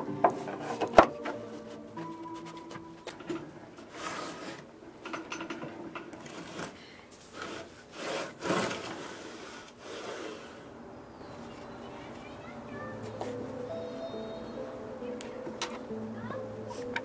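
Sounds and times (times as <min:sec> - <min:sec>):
wooden sled rubbing on saw table: 0:03.8 - 0:04.7, 0:06.2 - 0:10.6.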